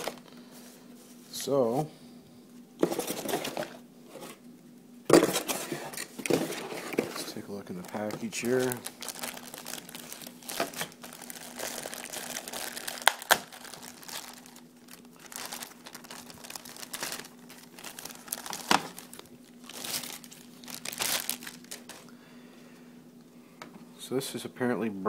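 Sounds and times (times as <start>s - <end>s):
plastic bag crinkling: 0.0s - 0.4s, 5.3s - 22.1s.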